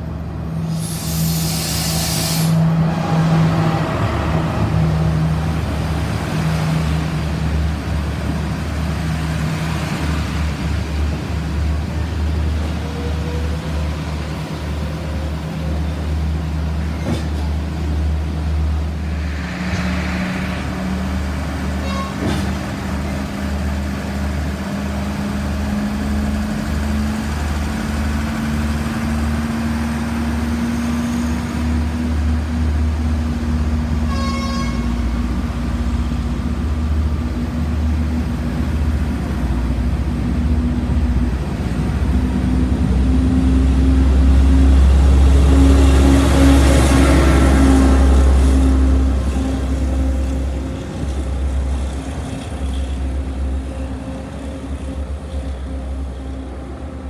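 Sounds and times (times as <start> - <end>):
diesel train engine droning: 0.0 - 57.0
train horn toot: 21.8 - 22.4, 34.0 - 35.2.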